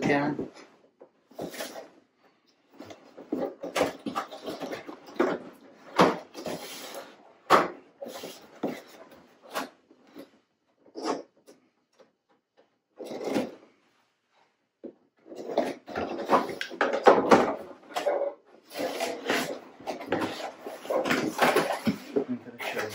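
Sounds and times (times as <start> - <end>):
cardboard flaps rustling: 15.4 - 22.9.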